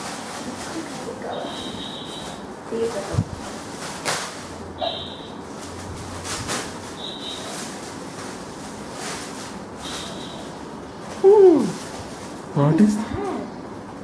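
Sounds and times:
foil gift wrap crinkling and tearing: 0.0 - 4.7, 5.4 - 13.0
short high-pitched chirps: 4.8 - 5.3, 7.0 - 7.6.

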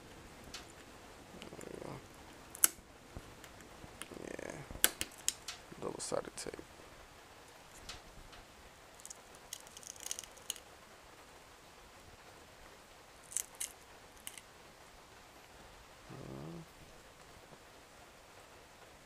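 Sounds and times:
plastic case clicks and crackles: 13.3 - 14.4
person humming: 16.1 - 16.7.

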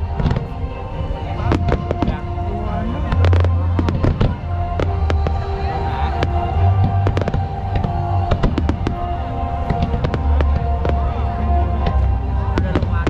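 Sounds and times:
fireworks cracks and bangs: 0.0 - 0.6, 1.4 - 13.0
deep rumble: 0.0 - 13.0
music playing: 0.0 - 13.0.

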